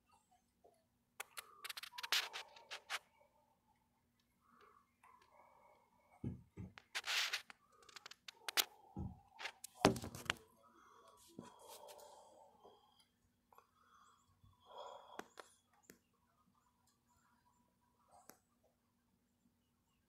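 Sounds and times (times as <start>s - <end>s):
phone handling knocks and rustles: 6.2s - 6.9s, 9.8s - 10.4s.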